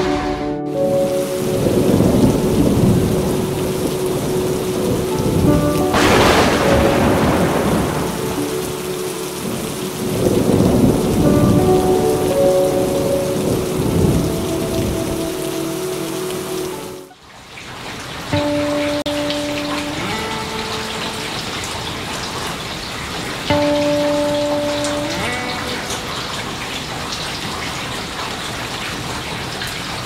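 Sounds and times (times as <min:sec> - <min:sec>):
thunder rumbling: 0:00.0 - 0:17.1
rain falling: 0:00.0 - 0:30.0
sharp thunderclap: 0:05.3 - 0:08.9.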